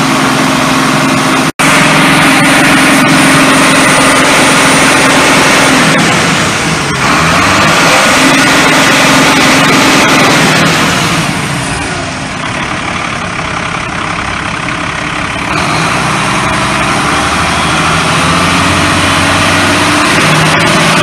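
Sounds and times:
turbo diesel engine idling: 0:00.0 - 0:21.0.

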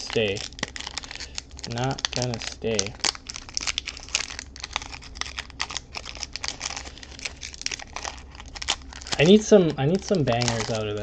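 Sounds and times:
foil wrapper crinkling: 0:00.0 - 0:11.0.

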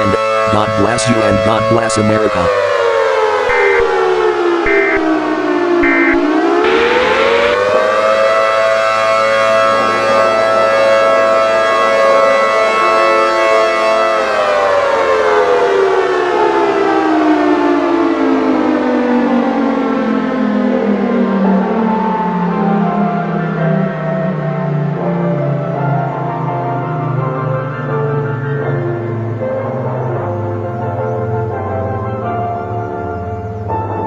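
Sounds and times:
warning siren wailing: 0:00.0 - 0:33.6
short high beeps: 0:03.5 - 0:03.9, 0:04.7 - 0:05.1, 0:05.8 - 0:07.6
rush of noise: 0:05.8 - 0:09.2.

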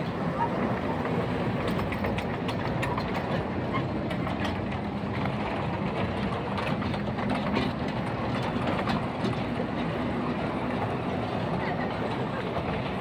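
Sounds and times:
clicks and rattles of train cars: 0:00.0 - 0:13.0
kiddie train humming: 0:00.0 - 0:13.0.

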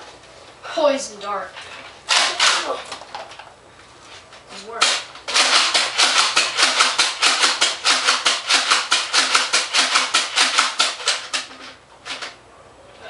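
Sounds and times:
toy dart blaster firing rapidly: 0:02.1 - 0:02.8, 0:04.8 - 0:12.2.

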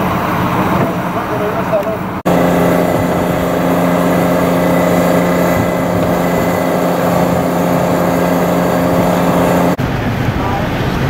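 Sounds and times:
machinery humming: 0:02.2 - 0:09.8.

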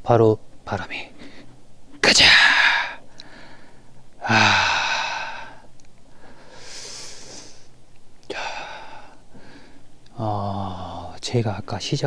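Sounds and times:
breathy hiss: 0:01.1 - 0:11.2
man sighing: 0:04.2 - 0:05.7.

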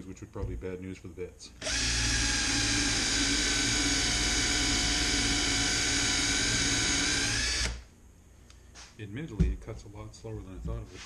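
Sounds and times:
cordless drill boring into wood: 0:01.6 - 0:07.8.

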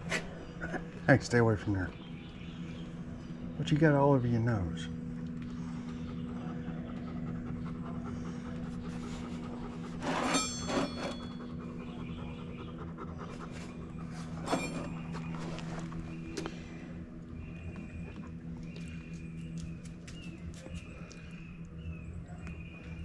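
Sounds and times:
steady low hum: 0:00.0 - 0:23.0
dog panting: 0:05.6 - 0:10.2, 0:11.2 - 0:14.4.

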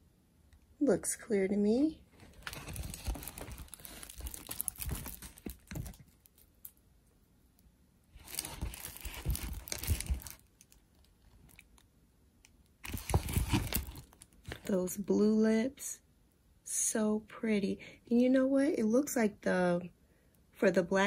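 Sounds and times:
plastic film crinkling: 0:02.2 - 0:06.8, 0:08.2 - 0:11.8, 0:12.8 - 0:14.8.

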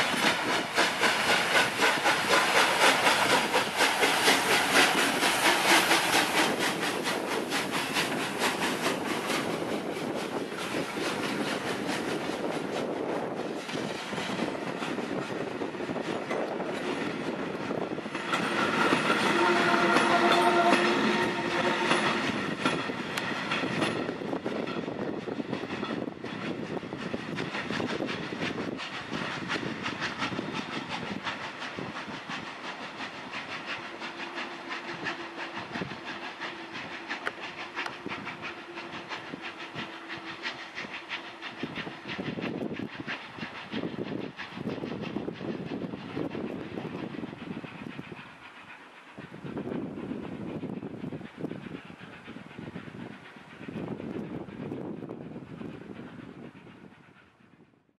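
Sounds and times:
train wheels clattering over rail joints: 0:00.0 - 0:57.6
steam whistle: 0:19.1 - 0:22.2.

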